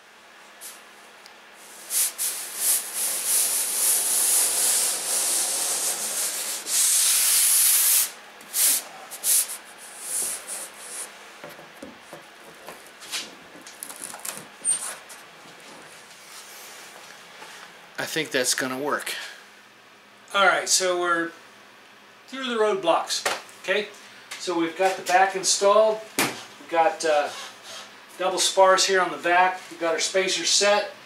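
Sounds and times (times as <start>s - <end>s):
rubbing on plywood ceiling: 2.0s - 8.0s.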